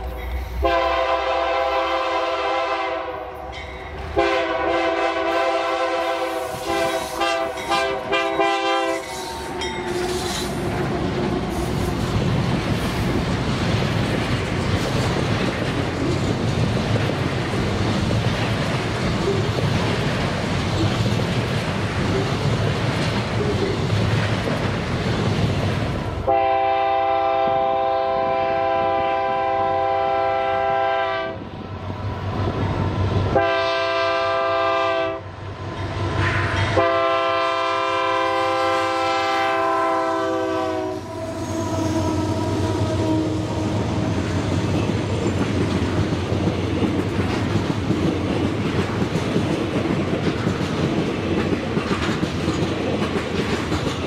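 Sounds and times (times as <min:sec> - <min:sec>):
train passing with rail clatter: 0:00.0 - 0:54.0
locomotive horn blasts: 0:00.6 - 0:03.4, 0:04.2 - 0:10.3, 0:26.3 - 0:31.4, 0:33.3 - 0:35.3, 0:36.7 - 0:43.9.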